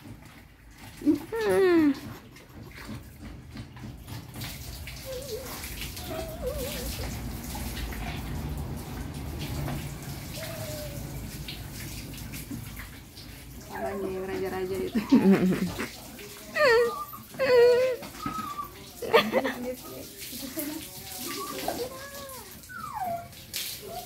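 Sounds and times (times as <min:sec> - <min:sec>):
water pouring and splashing: 0:00.0 - 0:24.0
dog whining: 0:04.9 - 0:07.7, 0:10.2 - 0:11.6, 0:13.6 - 0:14.1, 0:16.6 - 0:19.0, 0:21.1 - 0:24.0.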